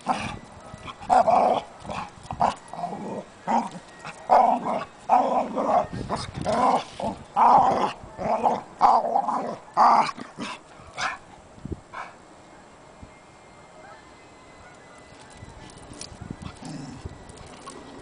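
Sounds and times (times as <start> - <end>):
dogs play growling: 0.0 - 11.2, 16.4 - 17.9.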